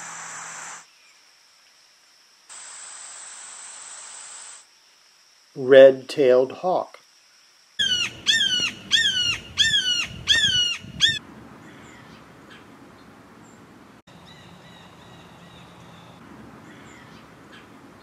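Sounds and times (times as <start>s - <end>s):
faint outdoor background: 0.0s - 18.0s
hawk calling: 7.8s - 11.2s.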